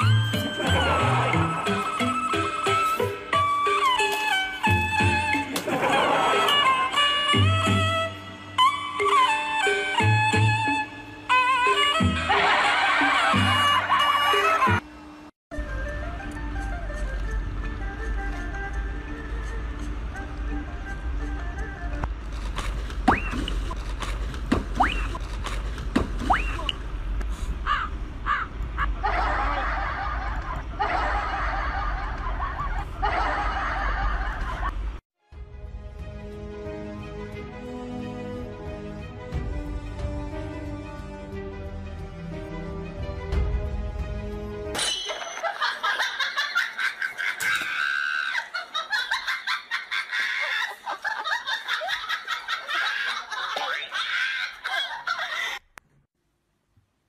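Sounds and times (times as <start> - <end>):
people laughing: 5.6 - 7.0, 12.2 - 14.8, 28.3 - 34.8, 45.3 - 55.6
snickering and giggling: 28.3 - 34.7, 45.4 - 55.6.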